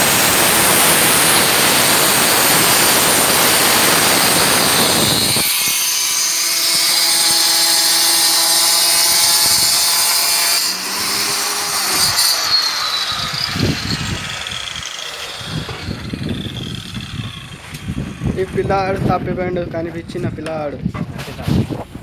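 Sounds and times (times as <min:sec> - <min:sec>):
stone saw grinding: 0:00.0 - 0:18.5
saw motor whining: 0:00.0 - 0:19.0.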